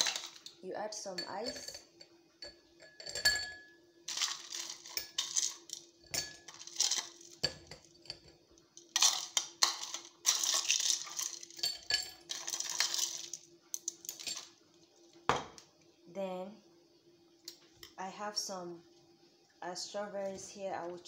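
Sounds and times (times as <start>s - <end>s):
ice cubes clinking in glasses: 0.0s - 0.5s, 2.8s - 8.2s, 8.9s - 14.5s.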